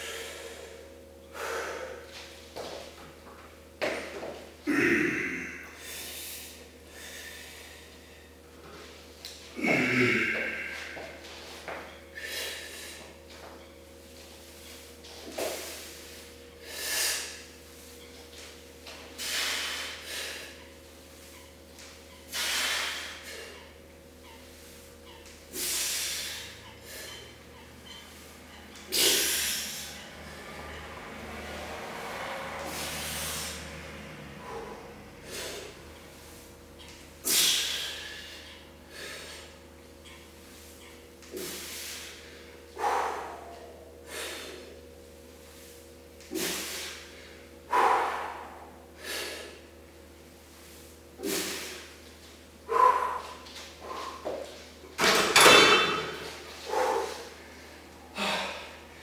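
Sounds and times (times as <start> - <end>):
man breathing hard: 0.0 - 2.2, 4.7 - 8.4, 9.5 - 11.2, 12.1 - 13.2, 32.6 - 36.4, 37.2 - 39.6, 41.3 - 44.8, 46.3 - 49.7, 52.7 - 54.5, 56.6 - 58.9.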